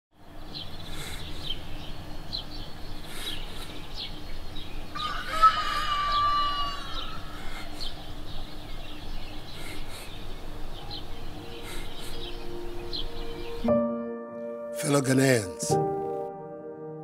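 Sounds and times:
small birds chirping: 0:00.2 - 0:13.9
rooster crowing: 0:04.9 - 0:07.4.

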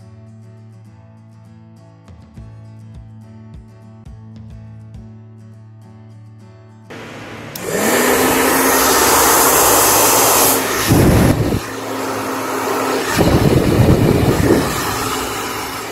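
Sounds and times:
air buffeting microphone: 0:06.9 - 0:12.1, 0:12.8 - 0:15.9
hair dryer whine and rushing air: 0:06.9 - 0:15.9.

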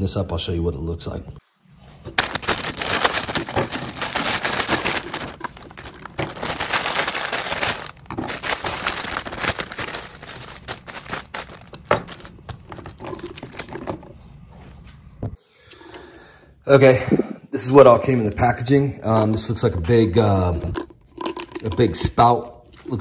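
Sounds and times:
plastic bag crinkling and tearing: 0:02.1 - 0:14.0.

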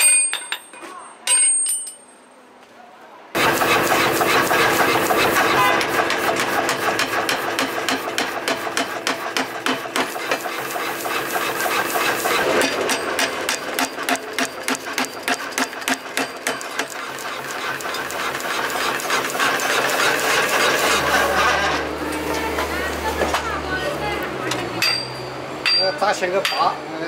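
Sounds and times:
power hammer pounding steel: 0:03.4 - 0:22.6, 0:24.5 - 0:26.8
machine running: 0:03.4 - 0:24.8.

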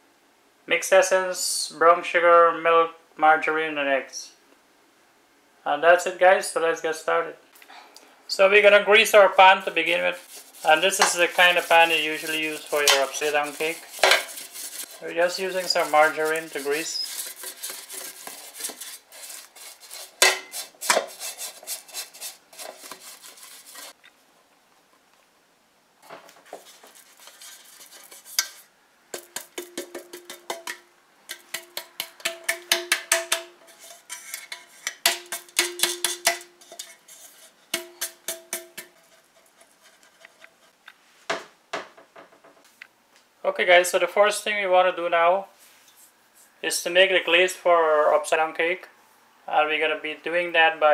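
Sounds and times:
brush scraping metal pan: 0:08.3 - 0:24.0, 0:26.4 - 0:40.8
metal pan rattling and ringing: 0:29.2 - 0:37.0, 0:37.8 - 0:39.0.

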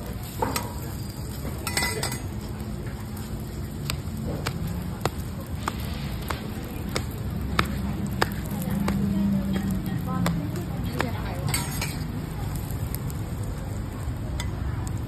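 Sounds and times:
dough slapping on steel counter: 0:03.8 - 0:12.8.

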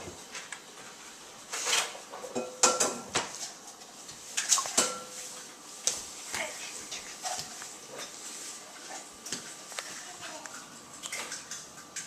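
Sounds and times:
dishes and utensils clinking: 0:01.5 - 0:03.5, 0:04.4 - 0:05.4.

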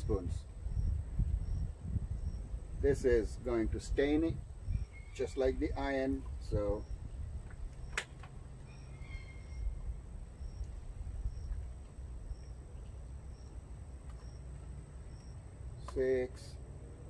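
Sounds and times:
low outdoor rumble: 0:00.0 - 0:17.0
sharp click: 0:07.8 - 0:08.4.

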